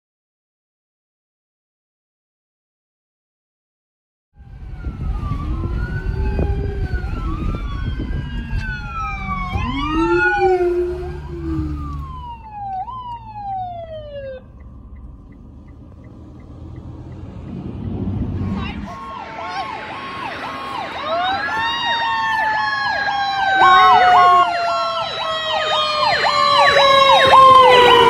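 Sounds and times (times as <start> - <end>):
emergency vehicle sirens: 4.4 - 28.0
low vehicle rumble: 4.4 - 28.0.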